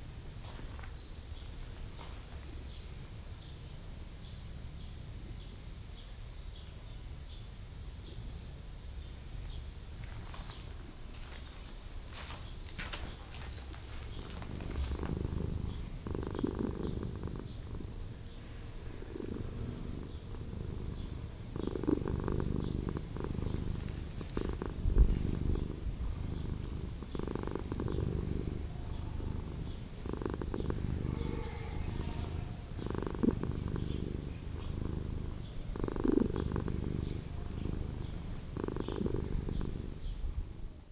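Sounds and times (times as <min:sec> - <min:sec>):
cat purring: 0:13.1 - 0:40.9.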